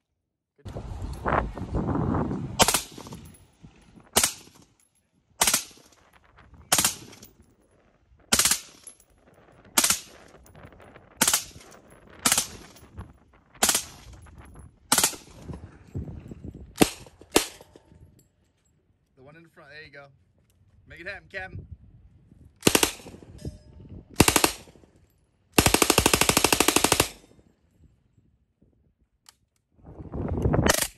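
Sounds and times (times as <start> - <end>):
rifle shots: 2.6 - 3.2, 4.2 - 4.6, 5.4 - 6.0, 6.7 - 7.3, 8.3 - 8.9, 9.8 - 10.2, 11.2 - 12.8, 13.6 - 14.1, 14.9 - 15.4, 16.8 - 17.7, 22.6 - 23.2, 24.2 - 24.8, 25.6 - 27.2.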